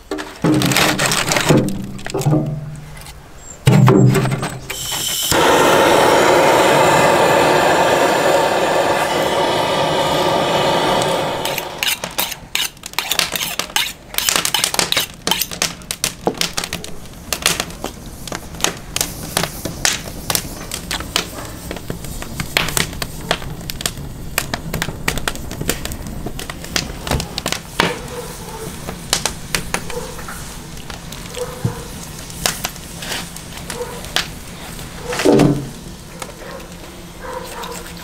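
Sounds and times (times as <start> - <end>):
gas torch hissing: 4.6 - 15.6, 25.2 - 37.2.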